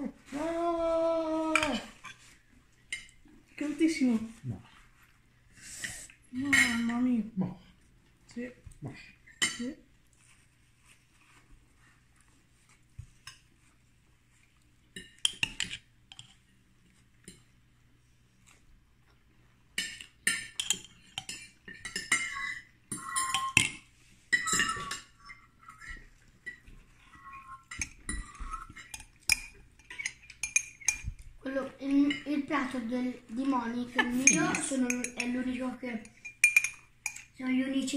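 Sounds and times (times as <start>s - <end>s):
cutlery clinking on plates: 19.8s - 31.2s, 34.0s - 35.4s, 36.1s - 37.3s.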